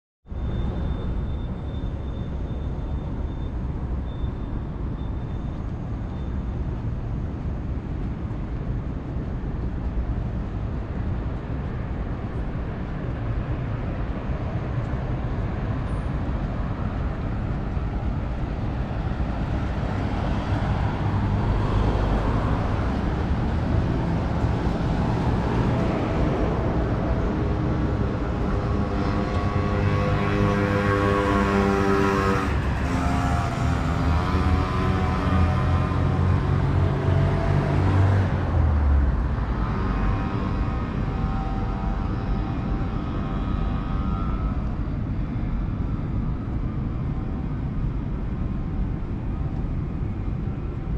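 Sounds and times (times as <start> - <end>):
road traffic rumble: 0.3 - 50.9
steady pitched drone: 11.5 - 50.9.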